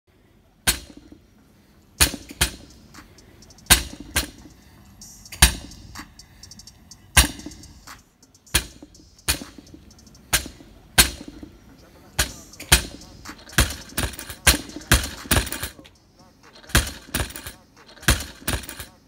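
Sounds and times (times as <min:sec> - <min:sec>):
plates rebounding knock: 0:08.6 - 0:11.5.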